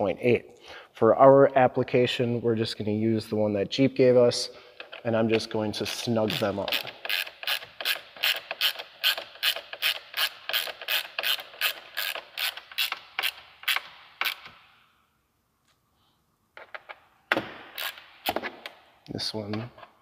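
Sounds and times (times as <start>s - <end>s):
ratcheting driver clicks: 6.3s - 14.5s.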